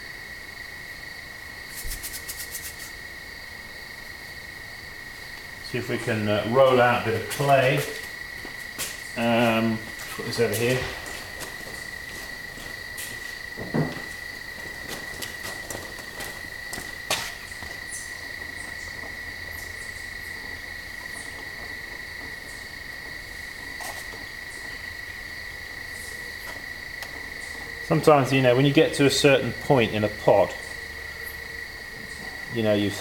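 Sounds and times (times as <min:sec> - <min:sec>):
crickets trilling: 0:00.0 - 0:33.0
soft handling knocks: 0:10.0 - 0:17.8.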